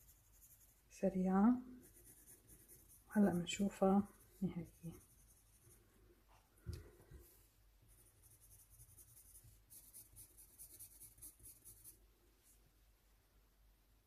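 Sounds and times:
pencil scratching on paper: 0.0 - 6.0, 7.9 - 12.0.

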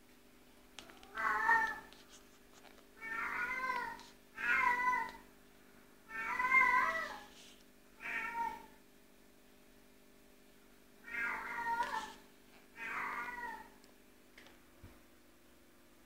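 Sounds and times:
cat meowing: 0.8 - 1.9, 3.0 - 5.2, 6.1 - 7.3, 8.0 - 8.7, 11.1 - 12.2, 12.8 - 13.7.

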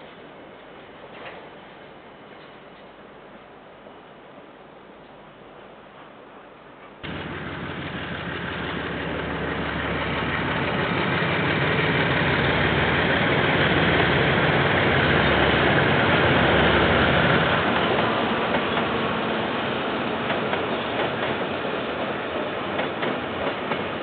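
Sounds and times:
diesel locomotive engine running: 7.0 - 21.4.

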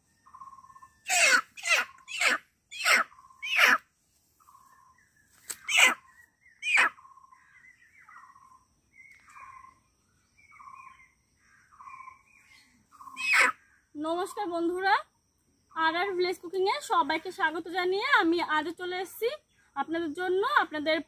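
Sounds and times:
hen calling softly: 0.3 - 3.8, 5.6 - 7.0, 13.0 - 13.6
hen squawking: 1.1 - 3.8, 5.6 - 6.0, 6.6 - 6.9, 13.1 - 13.6.

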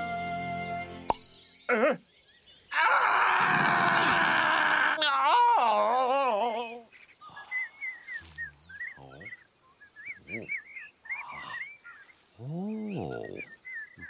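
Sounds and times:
cartoon birds chirping: 0.1 - 14.0
low vocal grunts: 1.7 - 2.0, 12.4 - 13.5.

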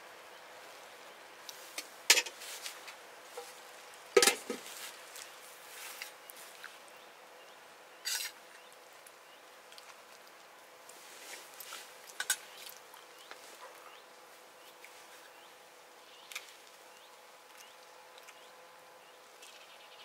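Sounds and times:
metal cookware clinking and clanking: 4.2 - 4.6.

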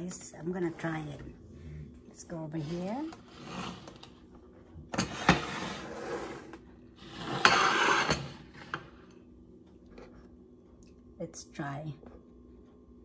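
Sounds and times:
rubbing and scraping: 5.0 - 9.0.

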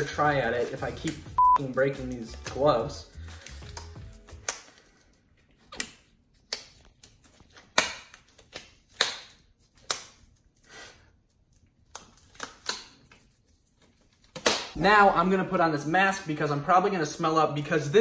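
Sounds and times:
glove cuffs snapping: 3.3 - 10.6, 11.6 - 13.2, 14.2 - 14.8.

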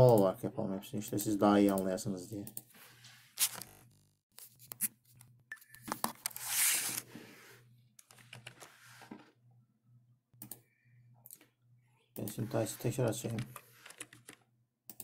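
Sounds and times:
computer mouse clicking: 1.1 - 2.7, 13.0 - 15.0.

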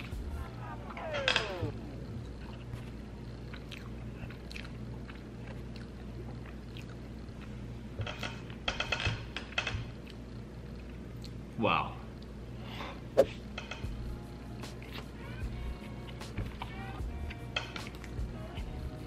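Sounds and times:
chewing and mouth smacking: 2.2 - 8.4, 10.0 - 11.4.

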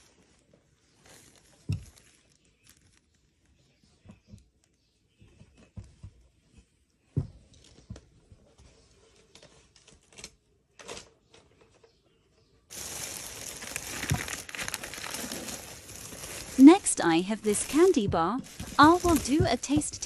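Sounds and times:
plastic bag crinkling: 0.0 - 3.3, 12.7 - 20.0.

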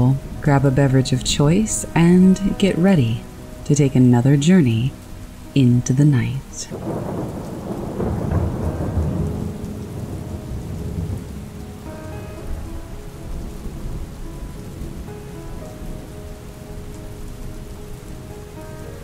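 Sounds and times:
soft held musical notes: 0.0 - 6.8
steady rain falling: 0.0 - 19.0
low rumble of thunder: 6.7 - 18.6.

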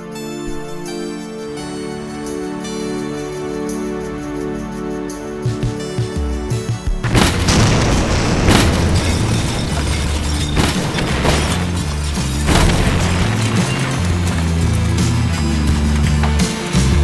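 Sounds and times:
explosion blasts and booms: 7.0 - 15.7.

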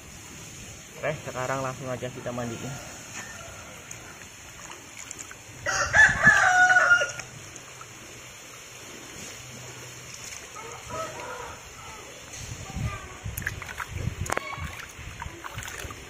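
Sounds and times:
rooster crowing: 2.2 - 4.2, 5.6 - 7.4, 10.6 - 12.2
water sloshing in a basin: 3.4 - 16.0.

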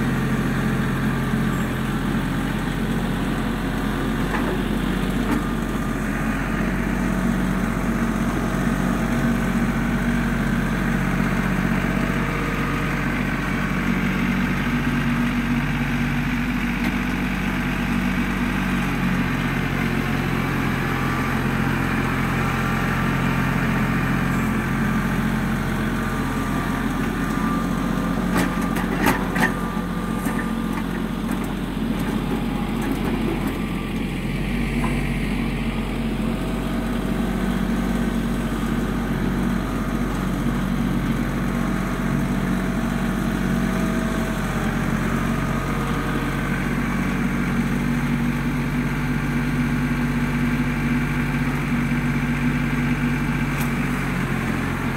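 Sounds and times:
tractor diesel engine under load: 0.0 - 54.9.

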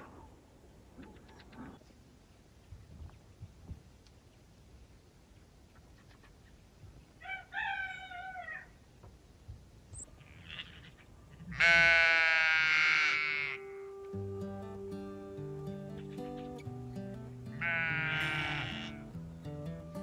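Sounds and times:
sheep bleating: 10.2 - 14.2, 17.4 - 19.2
guitar music: 13.2 - 20.0.

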